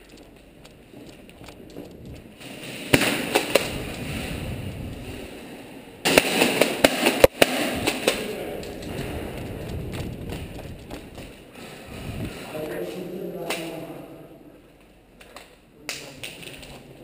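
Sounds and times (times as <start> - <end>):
airsoft guns firing: 2.8 - 5.1, 6.0 - 11.4.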